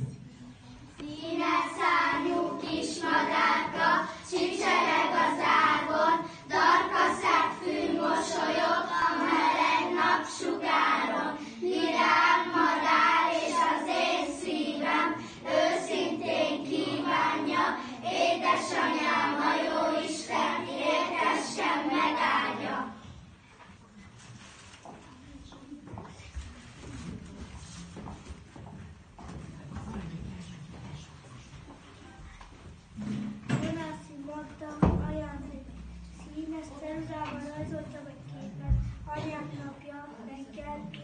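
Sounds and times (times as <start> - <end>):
children singing in unison: 1.0 - 23.1.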